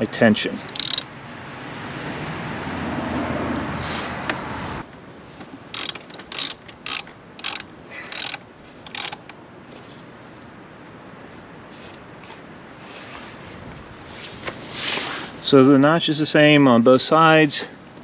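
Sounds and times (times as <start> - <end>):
ratchet wrench clicking: 0.7 - 1.1, 5.7 - 9.3.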